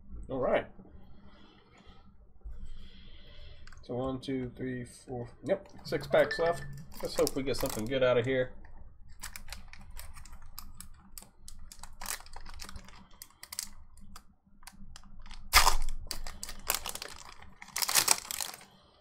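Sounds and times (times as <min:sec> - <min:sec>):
foil wrapper crinkling and tearing: 0:06.9 - 0:07.9, 0:09.1 - 0:19.0.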